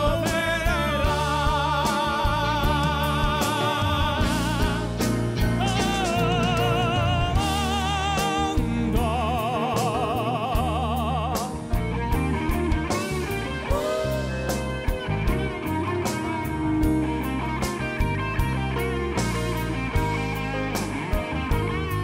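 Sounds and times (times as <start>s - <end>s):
band accompaniment: 0.0s - 22.0s.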